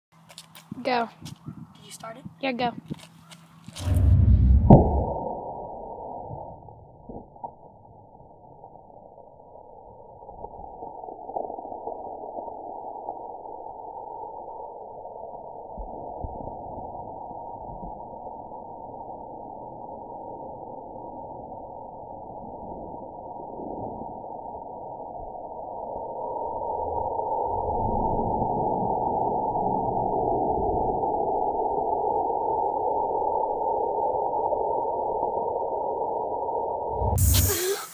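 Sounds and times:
low muffled rushing spray: 0:03.8 - 0:05.2, 0:36.9 - 0:37.7.

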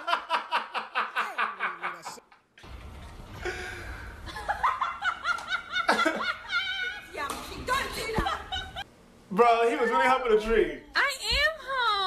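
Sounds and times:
man laughing: 0:00.0 - 0:02.2, 0:04.3 - 0:07.1.

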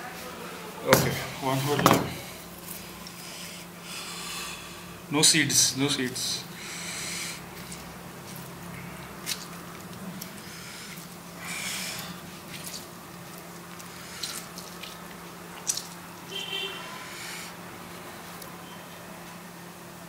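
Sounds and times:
steady low hum: 0:00.0 - 0:20.0
juice dripping: 0:06.0 - 0:19.1
wet squishing of limes: 0:06.4 - 0:18.9.

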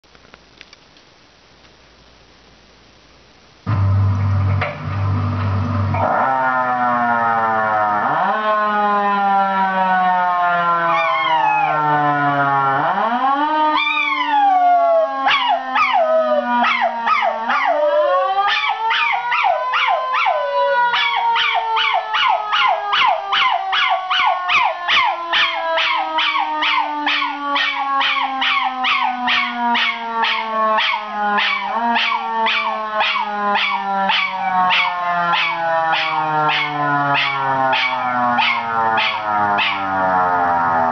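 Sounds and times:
siren wailing: 0:03.7 - 0:40.9
dog howling: 0:10.9 - 0:11.8, 0:13.7 - 0:40.0.

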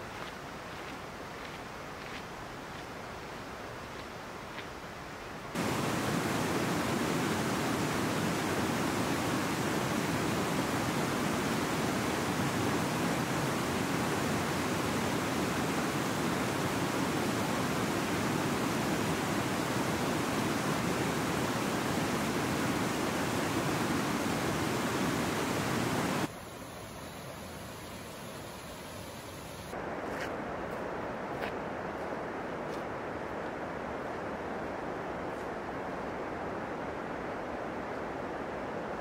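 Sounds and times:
creek rushing over rocks: 0:05.6 - 0:26.3.

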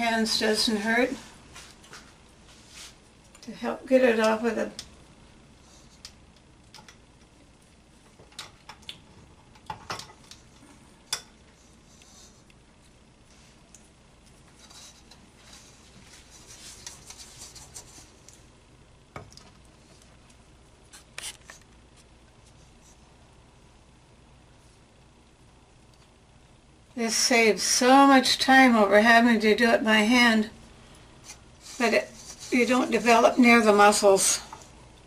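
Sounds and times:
soft rustling rub of dough: 0:00.4 - 0:03.6, 0:10.4 - 0:18.6, 0:19.6 - 0:23.4, 0:30.6 - 0:34.9.

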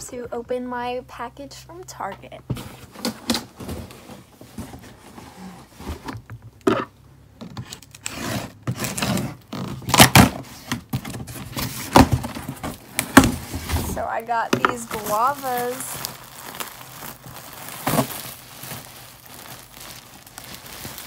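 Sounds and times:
cardboard box scraping and knocking: 0:02.5 - 0:06.9, 0:07.6 - 0:15.8.

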